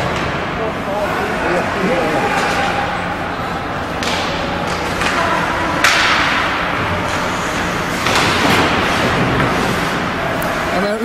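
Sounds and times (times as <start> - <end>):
hockey sticks and puck knocking: 3.8 - 10.7.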